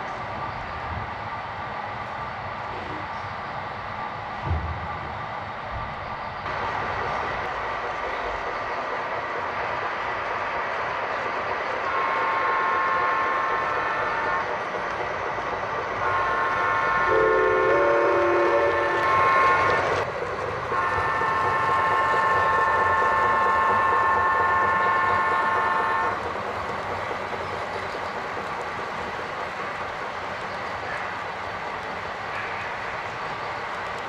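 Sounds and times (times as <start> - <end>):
model trains running on track: 0.0 - 34.0
model train horn blasts: 11.9 - 14.5, 16.0 - 20.0, 20.7 - 26.2.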